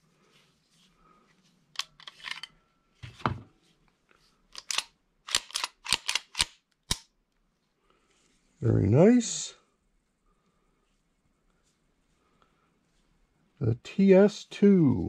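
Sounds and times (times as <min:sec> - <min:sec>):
pistol metal clicks: 0:04.5 - 0:07.1.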